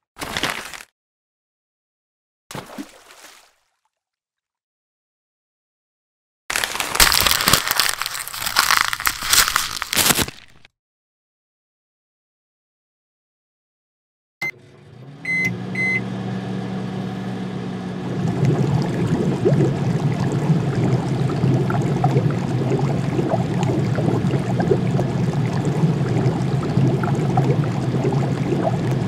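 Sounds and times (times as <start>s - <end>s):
electrical hum: 14.4s - 29.0s
cooktop beeps: 15.2s - 16.1s
broth boiling and bubbling: 17.9s - 29.0s.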